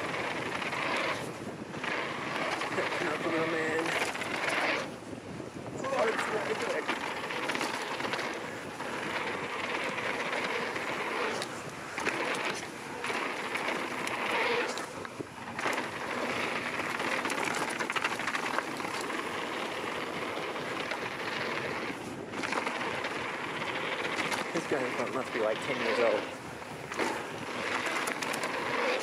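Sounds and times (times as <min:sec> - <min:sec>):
bike clicking and rattling: 0:00.0 - 0:29.0
bike tyres rolling on dirt: 0:00.0 - 0:29.0.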